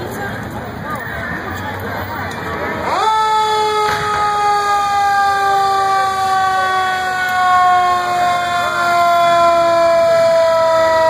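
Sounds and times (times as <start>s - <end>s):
fire truck siren wailing: 2.8s - 11.0s.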